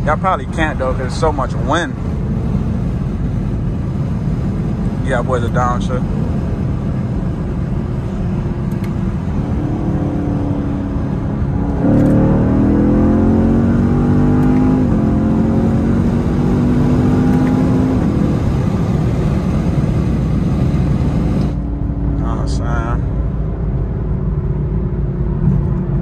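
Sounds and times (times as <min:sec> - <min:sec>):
car engine accelerating: 0:00.0 - 0:26.0
wind and road noise: 0:00.0 - 0:26.0.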